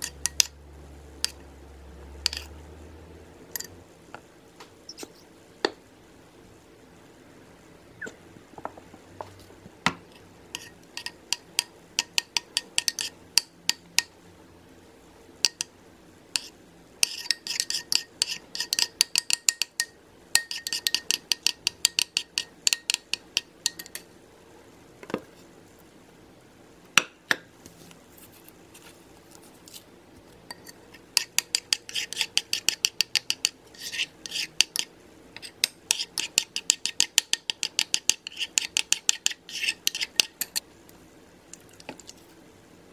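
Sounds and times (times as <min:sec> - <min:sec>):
metal spoon clinking against bowl: 0:16.4 - 0:24.1.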